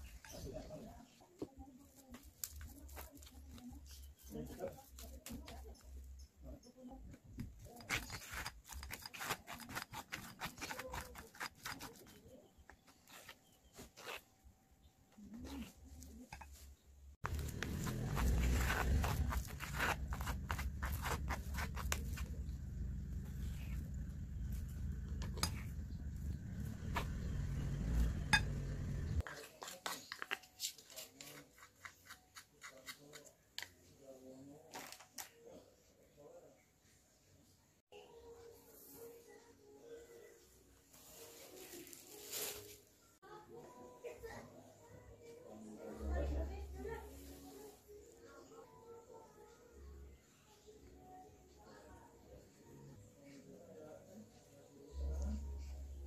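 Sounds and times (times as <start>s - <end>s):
spoon scraping through mesh sieve: 7.7s - 12.3s
low rumble: 20.1s - 29.2s.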